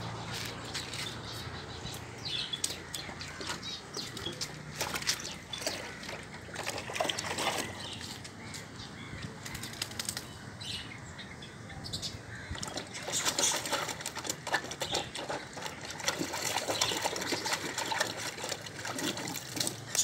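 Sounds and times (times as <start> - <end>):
puppy splashing water in tub: 0.0 - 8.4, 12.5 - 20.0.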